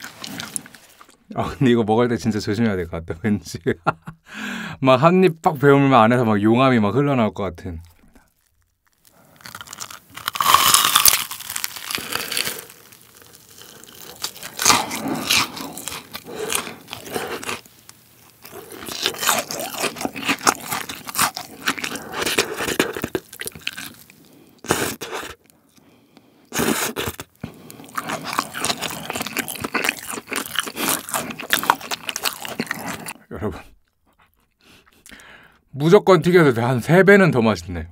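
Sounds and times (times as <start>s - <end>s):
crunchy bites and chewing: 0.0s - 1.2s, 7.8s - 33.2s.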